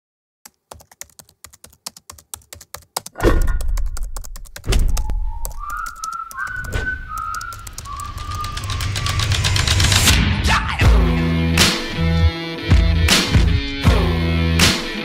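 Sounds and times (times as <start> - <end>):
rapid typing clicks: 0.4 - 10.1
whistled tune: 4.9 - 9.9.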